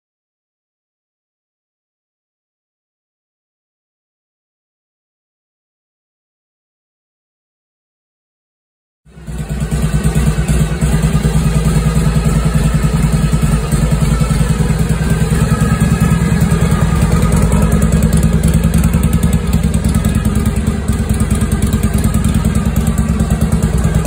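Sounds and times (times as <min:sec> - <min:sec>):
motorcycle engine idling: 0:09.1 - 0:24.0.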